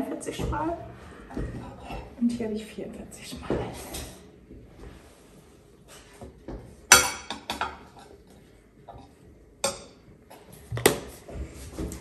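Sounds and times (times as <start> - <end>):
dishes clinking: 6.9 - 8.2, 8.9 - 10.1.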